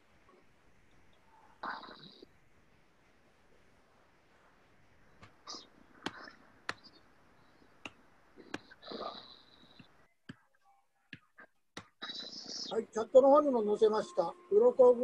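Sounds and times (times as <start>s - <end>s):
background hiss: 0.0s - 10.8s.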